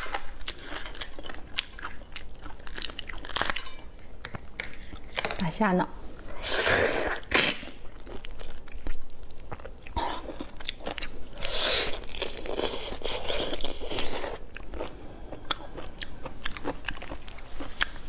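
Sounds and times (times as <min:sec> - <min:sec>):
chewing: 0:07.1 - 0:18.0.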